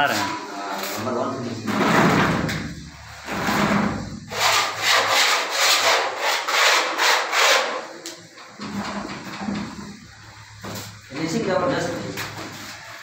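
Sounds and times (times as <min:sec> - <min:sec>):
putty blade scraping wall: 0:03.3 - 0:07.8.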